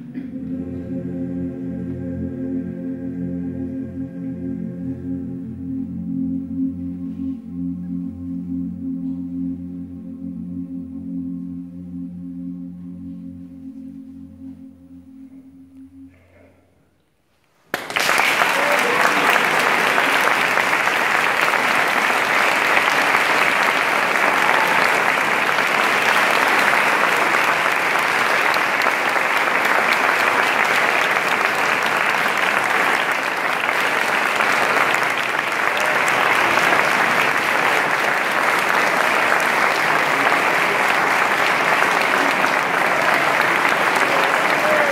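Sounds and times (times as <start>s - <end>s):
audience applauding: 17.7s - 44.9s.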